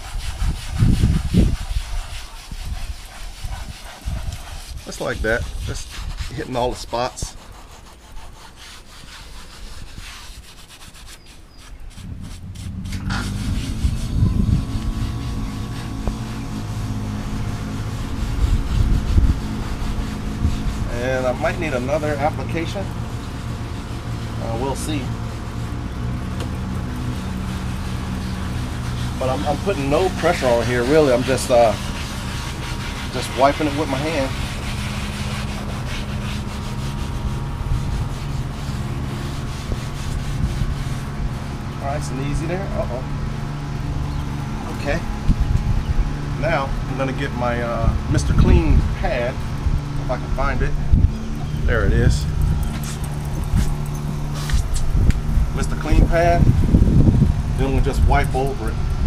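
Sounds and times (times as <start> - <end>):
wind rumbling on microphone: 0.0 - 8.2, 9.3 - 11.1, 11.7 - 59.0
scouring pad rubbing upholstery: 0.0 - 58.8
steady low hum: 0.0 - 59.0
low engine drone: 11.9 - 59.0.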